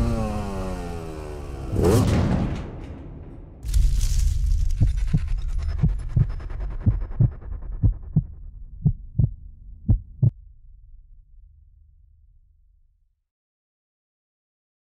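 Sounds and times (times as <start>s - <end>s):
low rumble: 2.6s - 13.0s
heartbeat double thumps: 4.8s - 10.3s.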